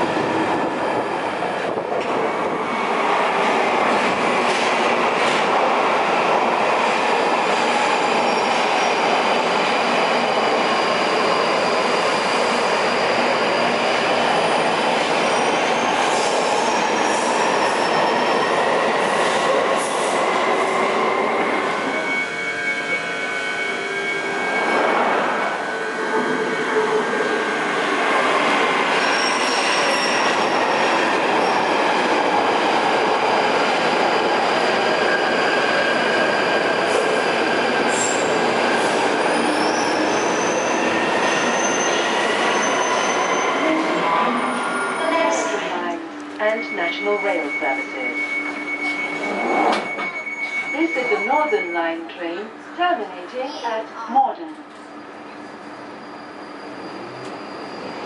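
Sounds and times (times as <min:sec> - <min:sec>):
train wheels on track: 0:00.0 - 0:53.0, 0:54.5 - 0:58.0
high-pitched wheel squeal: 0:28.9 - 0:30.5, 0:39.3 - 0:45.1, 0:46.6 - 0:51.8, 0:55.0 - 0:58.0.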